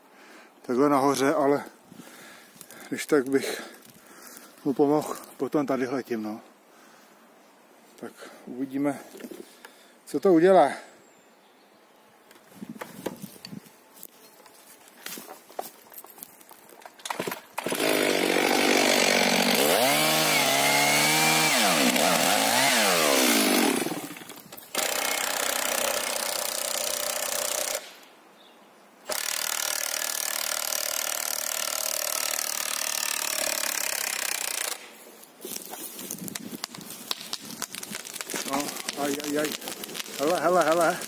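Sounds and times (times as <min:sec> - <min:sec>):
chainsaw cutting wood: 0:17.0 - 0:28.0, 0:29.1 - 0:41.0.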